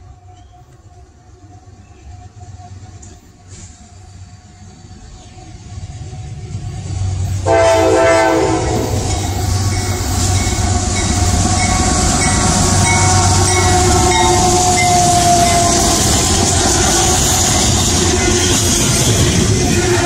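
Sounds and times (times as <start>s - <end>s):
train rumbling past: 0.0s - 20.0s
locomotive air horn chord: 7.4s - 9.2s.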